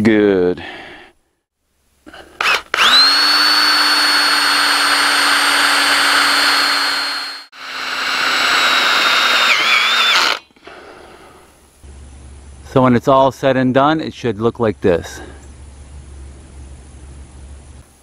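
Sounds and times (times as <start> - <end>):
power drill driving screws into metal: 2.4 - 10.5.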